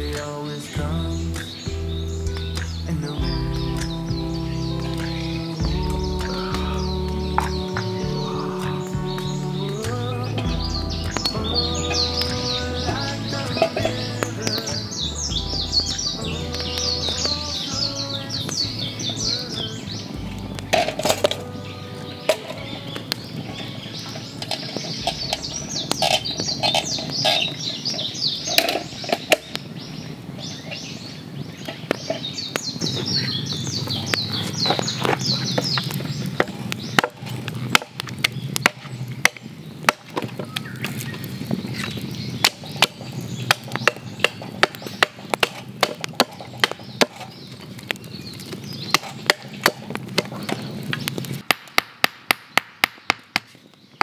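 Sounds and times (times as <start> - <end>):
small birds chirping: 0.0 - 51.5, 52.3 - 54.0
knocks of wood being worked: 35.0 - 41.0, 41.8 - 53.6.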